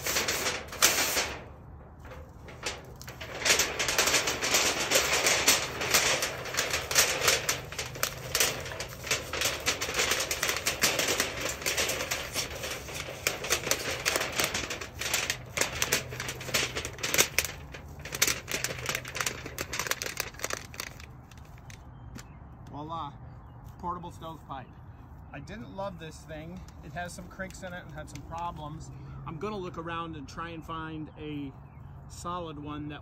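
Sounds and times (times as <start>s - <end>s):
sheet metal crinkling rattles: 0.0s - 21.8s.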